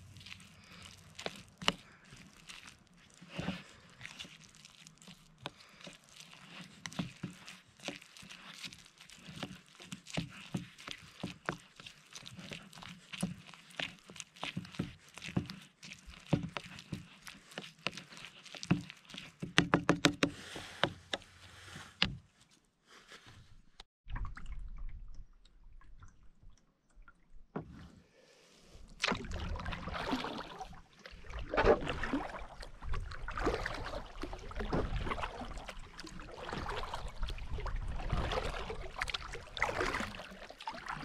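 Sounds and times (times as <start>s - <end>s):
plastic spoon stirring oatmeal: 0.0s - 22.6s
spoon scraping plastic bowl: 6.2s - 22.1s.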